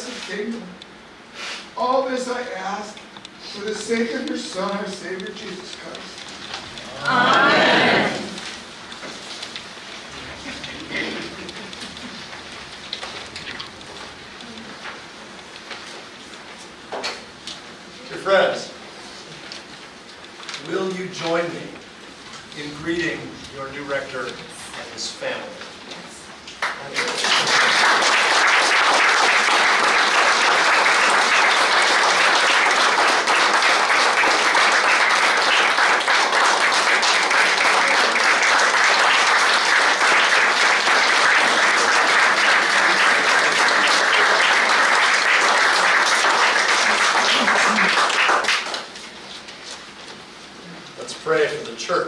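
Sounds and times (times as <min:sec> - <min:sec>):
congregation applauding: 0:26.6 - 0:49.0.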